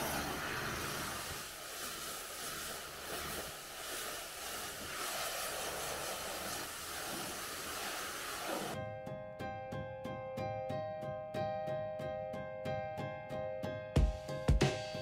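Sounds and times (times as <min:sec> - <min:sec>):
pressure washer spraying water: 0:00.0 - 0:08.8.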